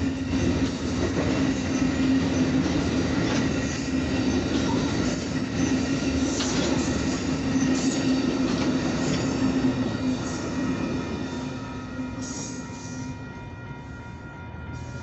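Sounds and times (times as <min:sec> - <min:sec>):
train wheels rumbling on rails: 0:00.0 - 0:13.9.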